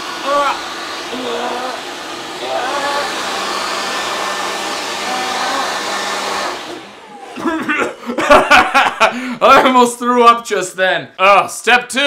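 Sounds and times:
hair dryer blowing: 0.0 - 9.4
person speaking: 0.1 - 4.0, 4.9 - 6.0, 9.2 - 12.0
man's strained voice: 0.2 - 3.5, 5.0 - 5.9.

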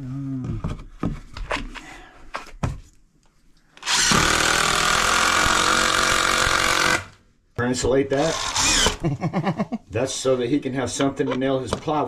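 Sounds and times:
cordless drill driving screw: 3.8 - 7.2, 8.2 - 9.0.

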